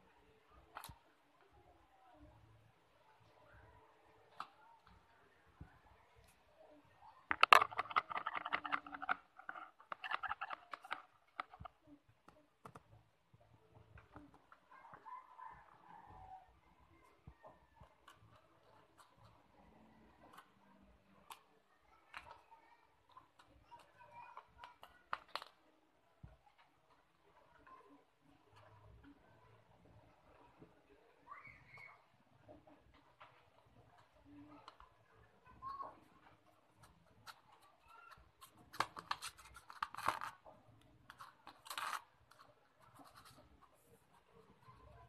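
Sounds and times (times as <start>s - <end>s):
faint clicks and taps: 0.5s - 2.3s, 3.2s - 45.0s
cat claws scratching on cloth: 36.8s - 45.0s.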